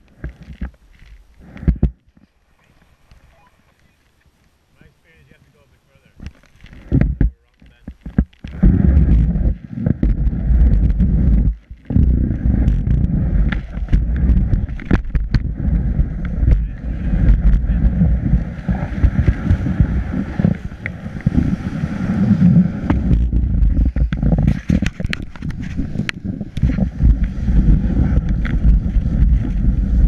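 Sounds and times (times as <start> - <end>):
small knocks and clicks: 6.2 - 8.6
dense low rumble: 6.6 - 30.0
skis scraping over snow: 8.5 - 30.0.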